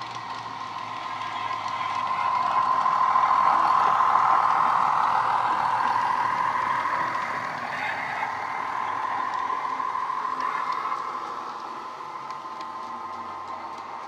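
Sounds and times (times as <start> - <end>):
diesel engine sound through small speakers: 0.0 - 14.0.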